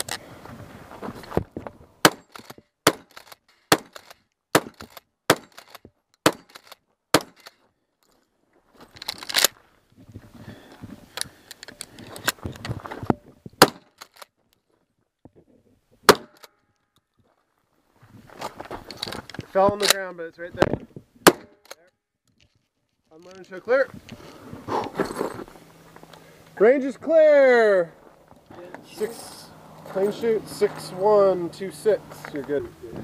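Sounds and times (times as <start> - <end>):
scuffling noise: 0.3 - 1.9
shotgun shots: 2.0 - 7.5, 13.6 - 14.0, 16.1 - 16.5, 21.2 - 21.7.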